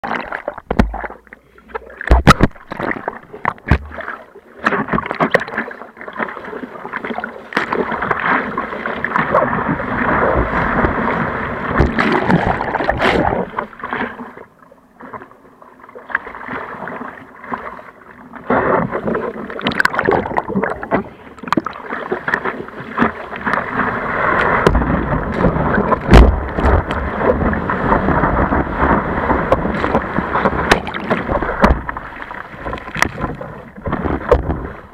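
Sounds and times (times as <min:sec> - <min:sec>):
muffled sea water splashing: 0:00.0 - 0:34.9
water knocking on camera case: 0:00.7 - 0:01.1, 0:03.4 - 0:04.0.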